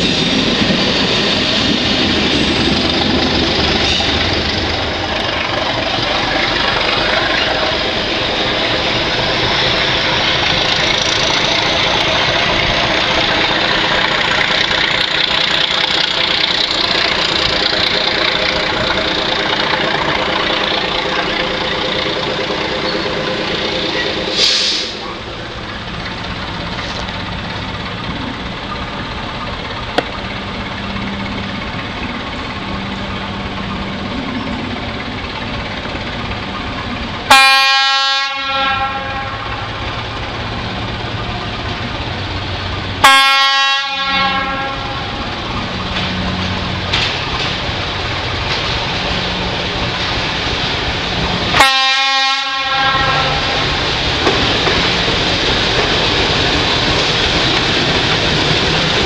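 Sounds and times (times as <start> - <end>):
diesel engine running: 0.0 - 59.0
locomotive horn blasts: 37.3 - 39.8, 43.0 - 45.2, 51.5 - 53.6.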